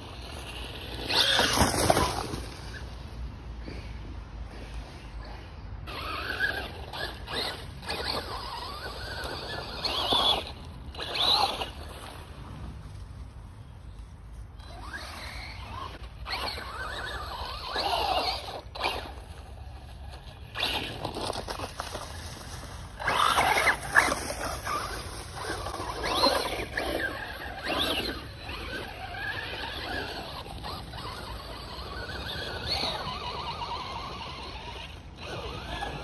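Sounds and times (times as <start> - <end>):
electric motor whining: 5.9 - 11.9, 23.0 - 36.0.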